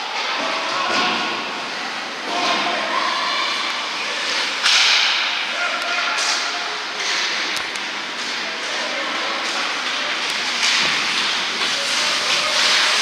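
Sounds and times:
indistinct echoing voices: 0:00.0 - 0:13.0
hockey sticks hitting puck: 0:04.2 - 0:13.0
skates scraping on ice: 0:08.6 - 0:13.0.

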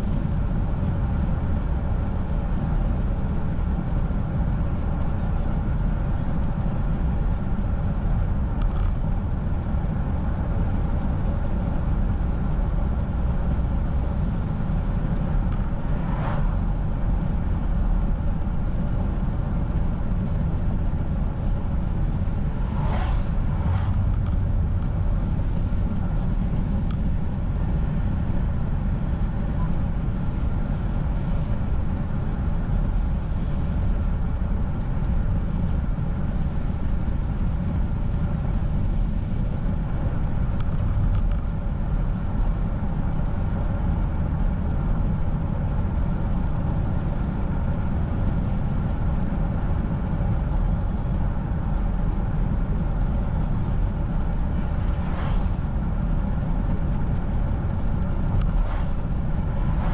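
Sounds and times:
car driving on wet road: 0:00.1 - 0:59.9.

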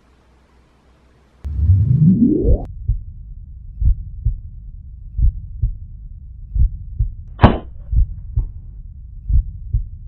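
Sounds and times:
heartbeat thumps: 0:01.5 - 0:04.5, 0:05.1 - 0:05.9, 0:06.5 - 0:10.0.

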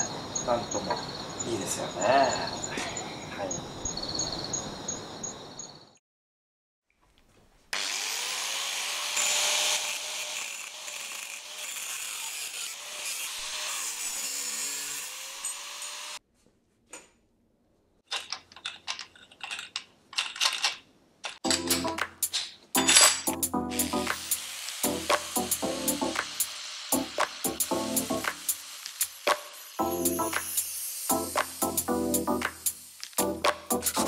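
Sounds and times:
night insects chirping: 0:00.0 - 0:06.0
angle grinder cutting pipe: 0:07.8 - 0:16.2, 0:22.8 - 0:34.0.

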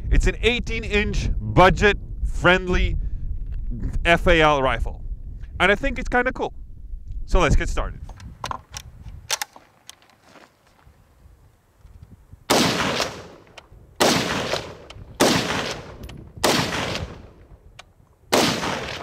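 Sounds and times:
rifle shots: 0:12.5 - 0:17.4, 0:18.3 - 0:19.0.

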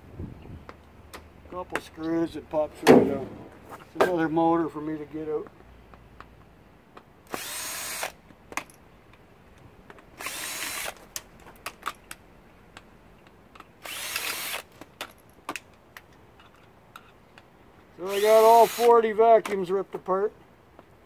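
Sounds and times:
power drill backing out screws: 0:13.8 - 0:14.6, 0:18.0 - 0:18.9.

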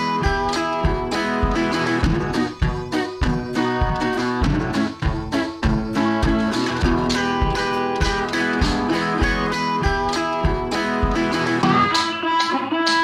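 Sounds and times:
guitar instrumental with steady beat: 0:00.0 - 0:13.0.

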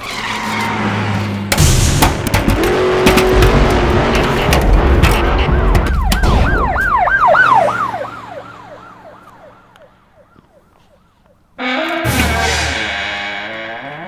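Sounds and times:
emergency siren yelping: 0:05.2 - 0:11.4.

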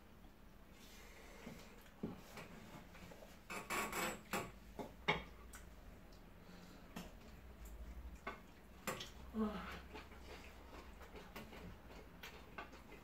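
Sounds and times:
chewing and mouth smacks: 0:05.2 - 0:13.0.

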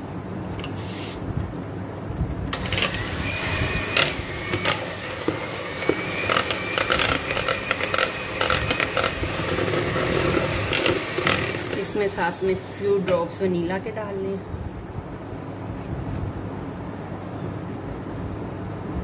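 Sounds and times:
electric hand mixer running: 0:02.6 - 0:13.1
beaters scraping plastic bowl: 0:02.6 - 0:13.3.

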